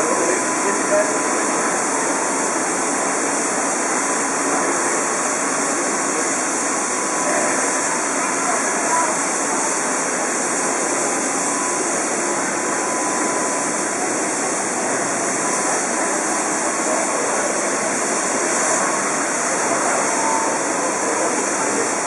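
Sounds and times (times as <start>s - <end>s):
steam hissing from locomotive: 0.0s - 22.0s.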